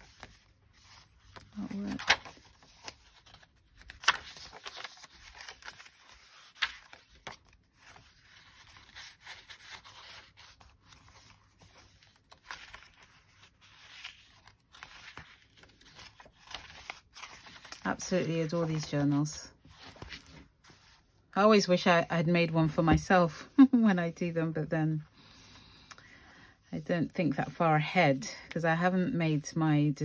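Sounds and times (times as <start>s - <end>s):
paper pages rustling: 0.0s - 21.2s.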